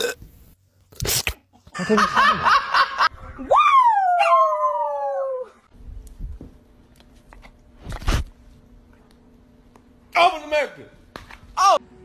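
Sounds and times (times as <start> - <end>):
dog howling: 3.5 - 5.6.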